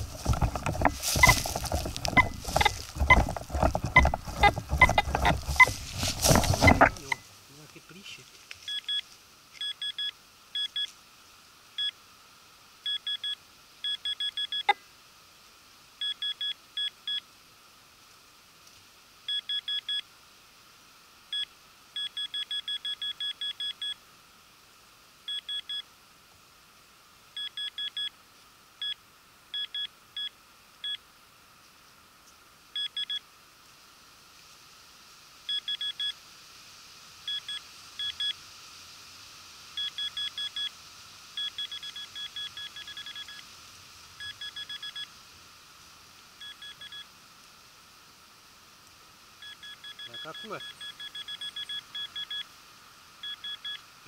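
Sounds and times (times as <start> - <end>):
metal detector short beeps: 1.2 - 5.8, 6.5 - 7.2, 46.4 - 47.0, 49.4 - 52.4.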